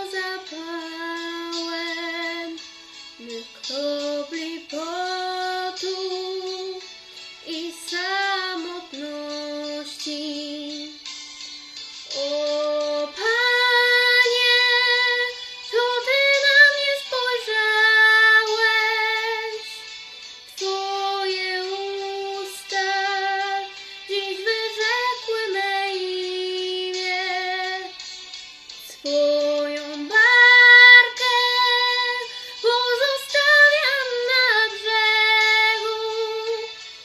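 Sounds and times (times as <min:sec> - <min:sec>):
girl singing: 0:00.0 - 0:02.6, 0:03.2 - 0:11.0, 0:12.1 - 0:19.8, 0:20.5 - 0:28.0, 0:28.8 - 0:36.7.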